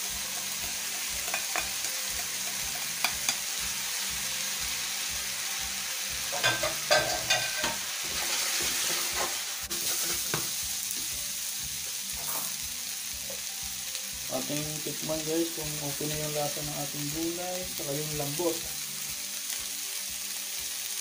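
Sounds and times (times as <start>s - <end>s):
vegetables sizzling in frying pan: 0.0s - 21.0s
spatula scraping pan: 6.4s - 10.4s.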